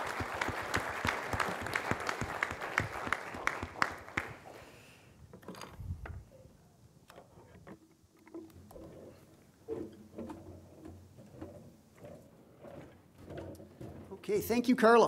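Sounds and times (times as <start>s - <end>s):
audience applauding: 0.0s - 4.8s.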